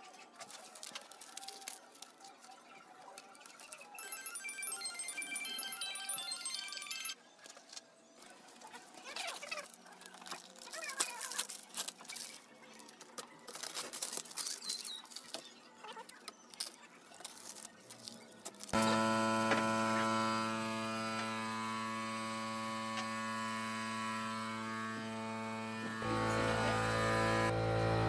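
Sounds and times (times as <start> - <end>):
tape and paper peeling and crumpling: 0.1 - 3.9, 8.2 - 20.2
loud steady hum: 18.8 - 28.0.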